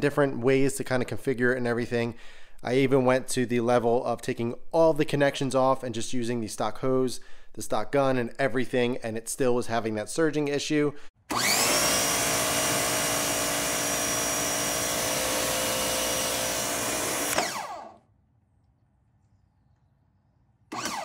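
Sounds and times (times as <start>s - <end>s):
pressure washer motor whining: 11.3s - 18.0s, 20.7s - 21.0s.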